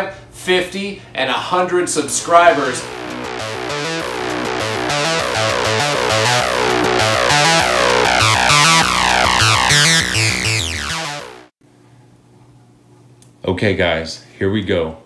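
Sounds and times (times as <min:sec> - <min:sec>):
electronic music with bass line: 0:02.2 - 0:11.6.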